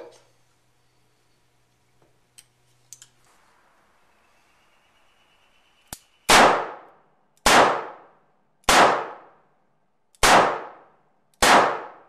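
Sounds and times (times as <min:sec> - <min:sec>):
revolver gunshots echoing: 0:06.2 - 0:09.5, 0:10.2 - 0:12.0.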